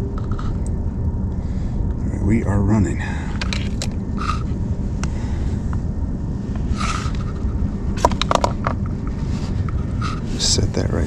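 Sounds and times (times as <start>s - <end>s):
heater low rumble: 0.0s - 11.0s.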